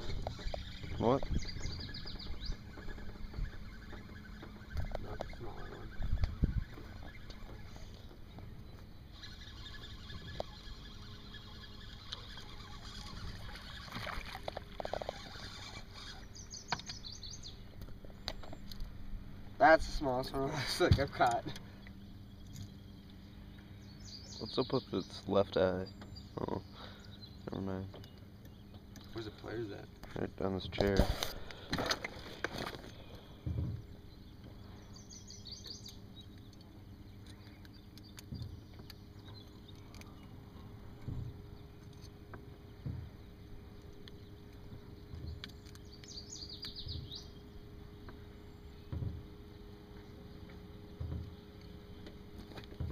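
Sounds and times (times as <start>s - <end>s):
low rumble of wind and water: 0.0s - 52.9s
small bird chirping: 0.3s - 14.2s, 15.0s - 18.8s, 32.9s - 40.8s, 41.4s - 47.7s
knocks on boat: 33.4s - 33.9s, 41.0s - 41.4s, 42.4s - 43.2s, 48.8s - 49.3s, 50.5s - 51.4s, 52.5s - 52.9s.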